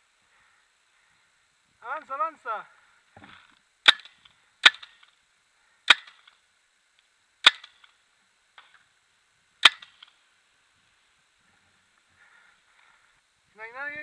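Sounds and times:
paintball marker shots popping: 3.8 - 5.1, 7.4 - 8.0, 9.6 - 10.2.

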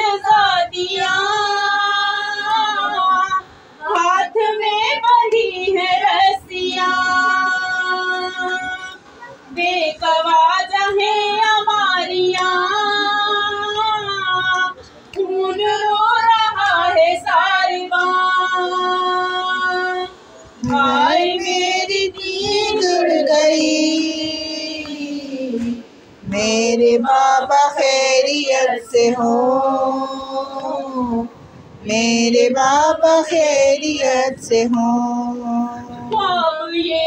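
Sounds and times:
solo voice singing a lament: 9.6 - 37.0.

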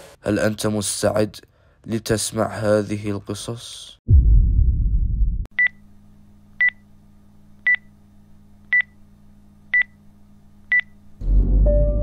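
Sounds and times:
loud deep rumble: 4.1 - 5.5.

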